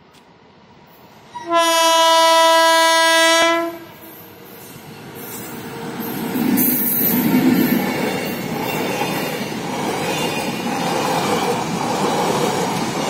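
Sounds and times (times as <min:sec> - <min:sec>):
train rumbling: 0:00.0 - 0:13.0
locomotive horn blast: 0:01.3 - 0:04.0.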